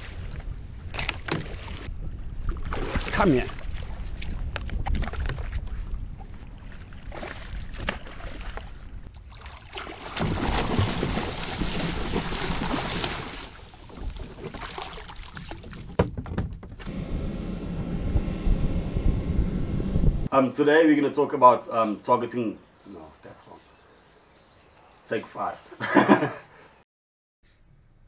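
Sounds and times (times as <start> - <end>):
wind buffeting microphone: 0.0 - 9.1, 16.6 - 20.3
water splashing: 0.0 - 16.3.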